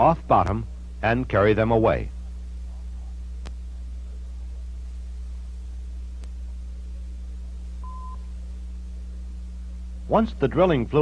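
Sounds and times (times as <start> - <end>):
low electrical hum: 0.0 - 11.0
faint clicks: 3.4 - 3.6, 6.2 - 6.4
short steady beep: 7.8 - 8.3.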